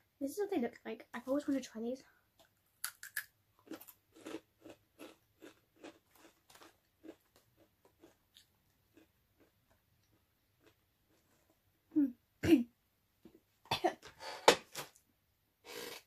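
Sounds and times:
crunchy chewing of chips: 2.8 - 11.6.

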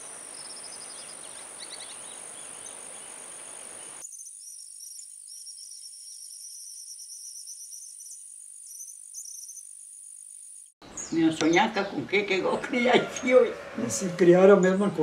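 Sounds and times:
small birds chirping: 0.0 - 12.7
high-pitched insect drone: 3.5 - 10.8.

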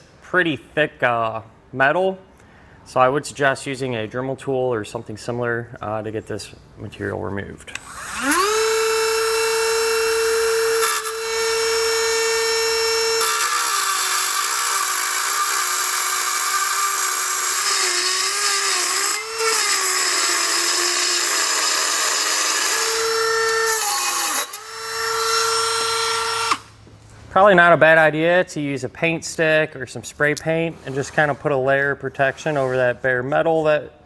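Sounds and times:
rotary tool grinding steel: 7.8 - 26.7.

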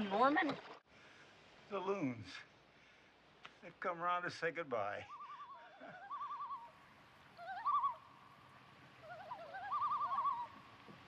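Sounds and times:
loons tremolo calls: 5.0 - 11.0.

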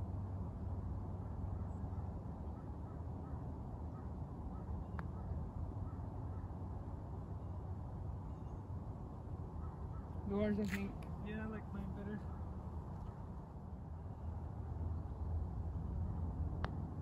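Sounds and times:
faint short bird calls: 9.6 - 10.9.

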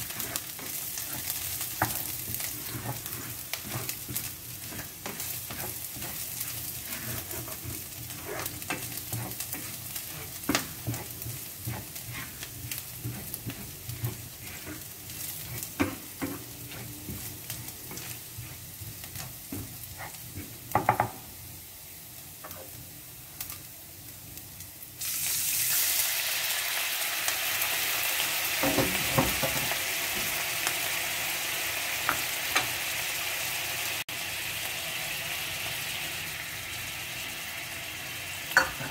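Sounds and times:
spatula scraping and tapping pan: 0.0 - 21.2, 28.6 - 30.4
garlic frying in oil: 0.0 - 38.9.

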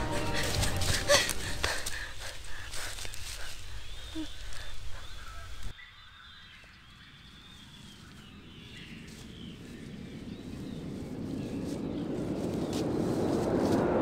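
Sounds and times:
birds chirping: 0.0 - 13.6
low rushing noise: 9.5 - 14.0.

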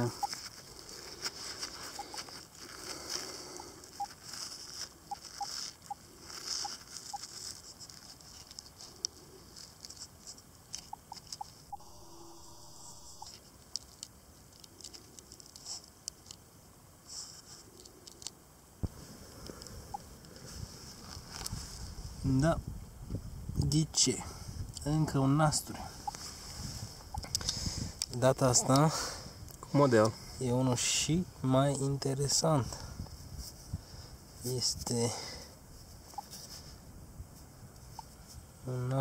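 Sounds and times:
faint short beeps: 0.0 - 0.4, 10.9 - 13.3
fingers rustling and scratching badge: 0.0 - 3.2, 3.9 - 11.9, 13.2 - 16.4.

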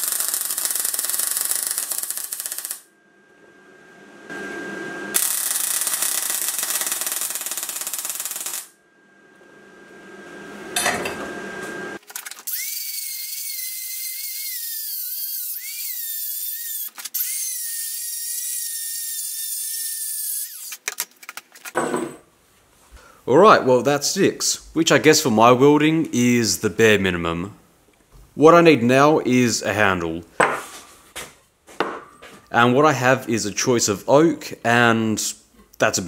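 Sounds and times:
arc welding hiss: 0.0 - 2.8, 5.2 - 8.7
rotary tool grinding whine: 0.0 - 2.8, 12.1 - 20.8.

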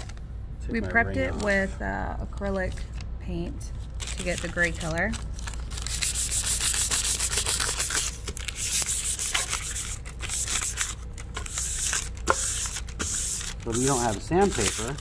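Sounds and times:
paper rubbing on painted board: 5.8 - 15.0.

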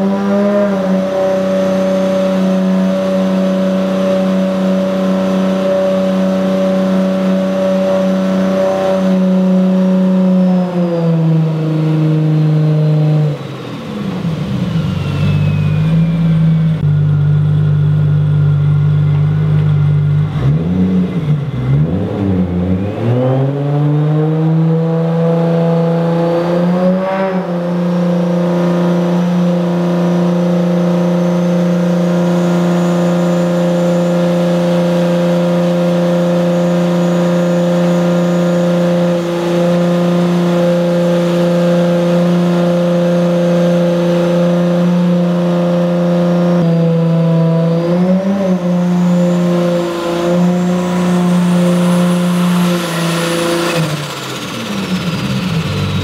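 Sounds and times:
turbocharged car engine running: 0.0 - 56.0
faint high whine: 13.5 - 18.7.

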